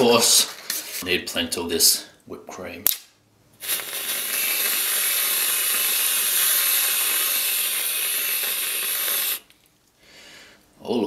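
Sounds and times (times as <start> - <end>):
aerosol whipped cream hissing: 3.6 - 9.5.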